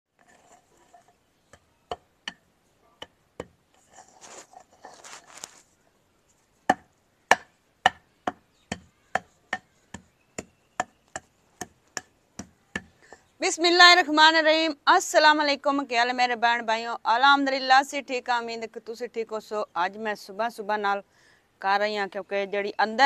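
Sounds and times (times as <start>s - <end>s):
rustling scrape: 0.2s - 1.2s, 3.7s - 5.8s
stick knocking on bricks: 1.5s - 2.4s, 3.0s - 3.6s, 6.7s - 13.0s.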